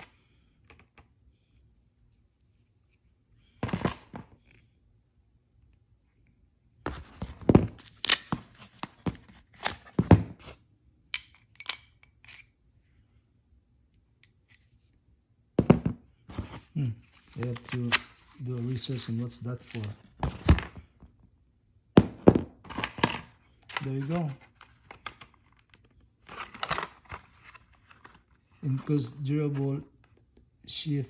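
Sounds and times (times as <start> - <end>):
hatchet and plastic sheath handling: 6.9 - 10.6, 16.4 - 20.8, 22.4 - 29.9.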